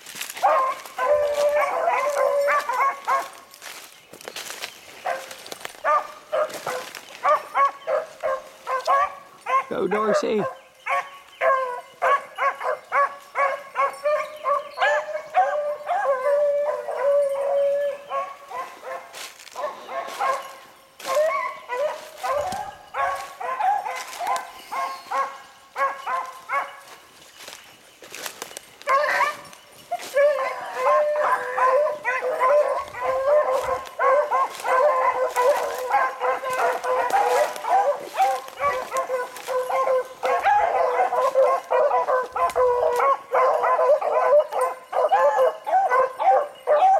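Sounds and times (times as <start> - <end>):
hounds baying and howling: 0.0 - 46.9.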